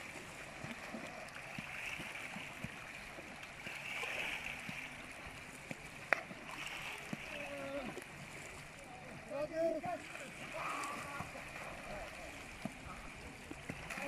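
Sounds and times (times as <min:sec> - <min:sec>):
waves lapping on pebbles: 0:00.0 - 0:08.7
sharp water slap: 0:05.7 - 0:07.4.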